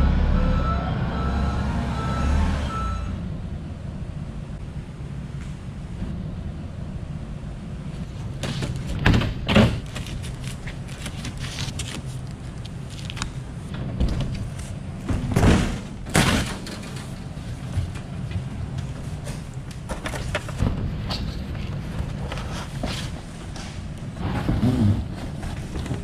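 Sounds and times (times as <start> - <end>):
low hum: 0.0 - 8.5.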